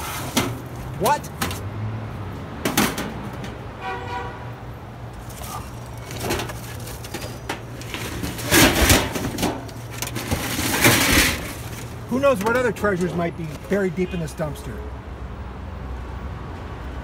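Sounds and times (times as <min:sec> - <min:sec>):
metal film cans clattering: 0:00.0 - 0:01.6, 0:05.2 - 0:13.8
plastic and cardboard rustling: 0:05.2 - 0:13.8.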